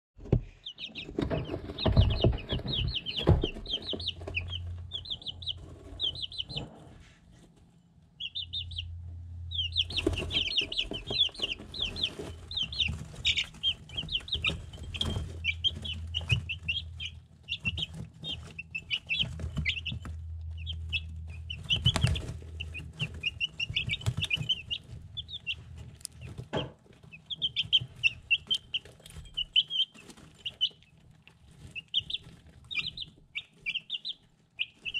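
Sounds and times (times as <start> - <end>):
chicks peeping: 0.2 - 34.9
low hum: 1.3 - 26.2.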